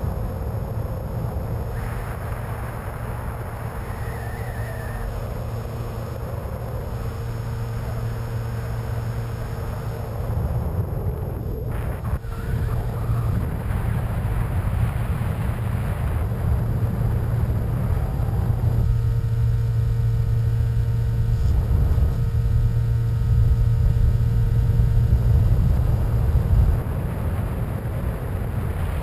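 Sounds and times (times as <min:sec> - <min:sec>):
model plane motor drone: 0:00.0 - 0:29.0
wind rush: 0:00.0 - 0:29.0.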